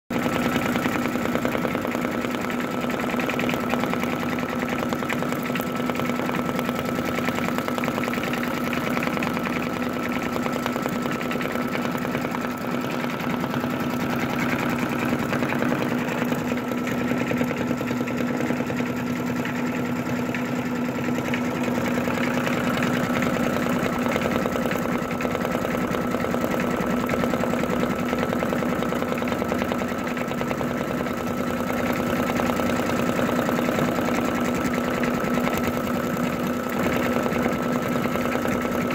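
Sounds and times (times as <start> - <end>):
motor hum: 0.2 - 38.9.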